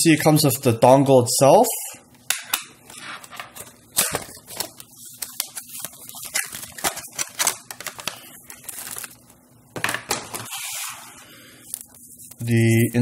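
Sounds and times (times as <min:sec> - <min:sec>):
plastic and paper crinkling: 0:03.0 - 0:09.4.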